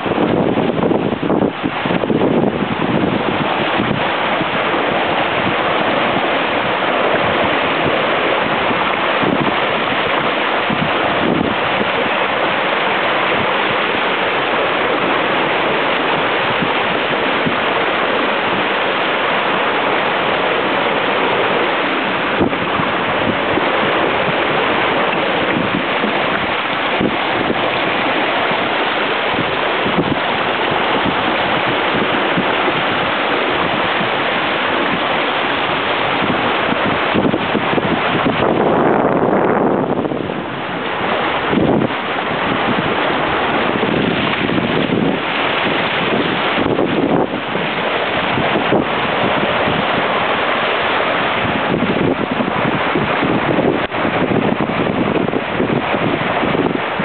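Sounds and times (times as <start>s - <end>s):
water splashing along hull: 0.0s - 57.0s
wind on microphone: 0.0s - 57.0s.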